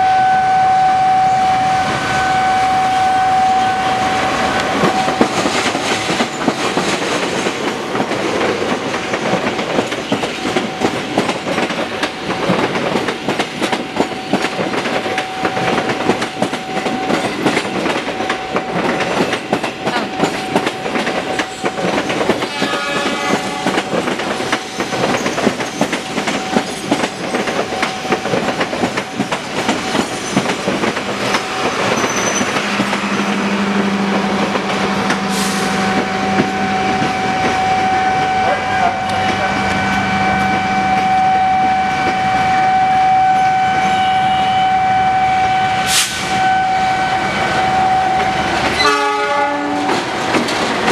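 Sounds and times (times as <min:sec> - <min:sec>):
train horn: 0:00.0 - 0:05.2, 0:22.3 - 0:24.0, 0:32.6 - 0:50.0
train wheels clattering over rails: 0:04.3 - 0:38.0, 0:48.2 - 0:50.9.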